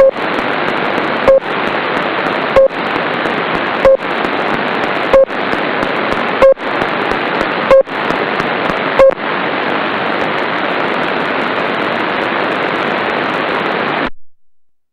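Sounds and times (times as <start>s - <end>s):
radio static hiss: 0.0s - 9.3s
short loud beeps: 7.7s - 7.9s.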